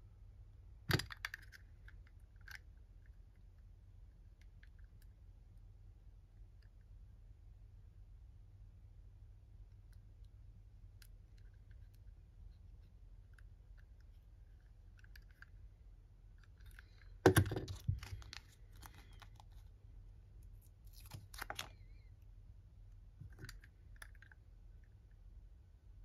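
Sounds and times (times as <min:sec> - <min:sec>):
plastic clatter: 0:16.7 - 0:19.3.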